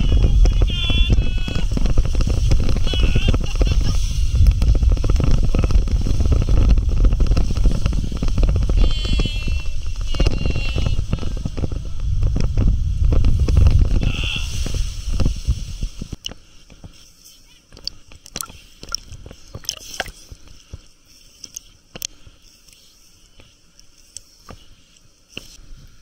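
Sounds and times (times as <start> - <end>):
raft tube rumbling and scraping: 0.0 - 16.2
light water sounds: 14.7 - 26.0.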